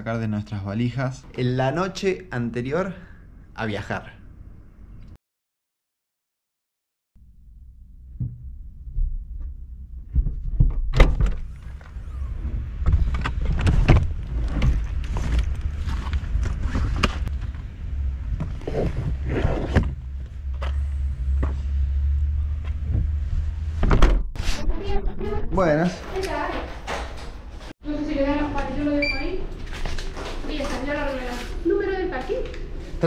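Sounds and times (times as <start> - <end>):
steady low rumble: 7.2 - 23.9.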